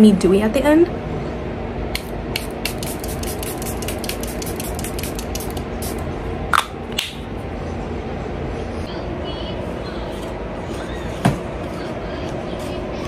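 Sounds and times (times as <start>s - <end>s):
spray bottle hissing spritzes: 2.7s - 6.0s.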